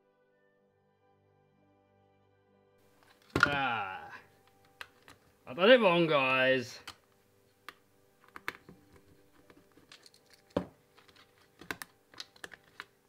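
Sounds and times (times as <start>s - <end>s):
plastic parts clicking: 7.7s - 13.0s.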